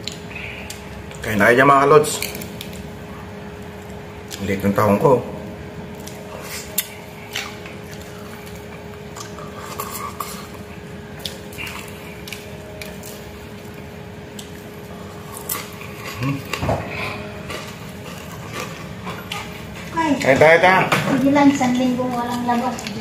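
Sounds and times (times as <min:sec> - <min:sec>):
steady background hum: 0:00.0 - 0:23.0
chewing and mouth smacks: 0:05.9 - 0:20.3, 0:22.1 - 0:23.0.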